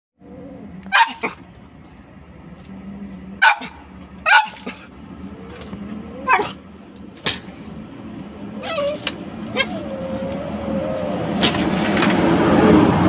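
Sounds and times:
dog barking: 0:00.9 - 0:01.4, 0:03.4 - 0:04.9, 0:06.2 - 0:06.6.

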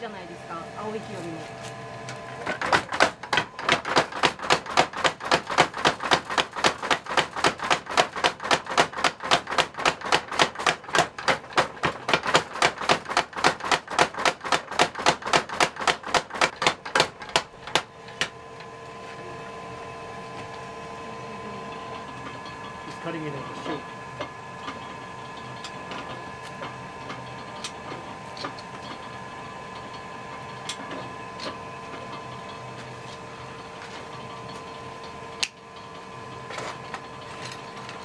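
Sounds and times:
steady machine hum: 0:00.0 - 0:38.0
power hammer striking metal: 0:02.4 - 0:18.4.

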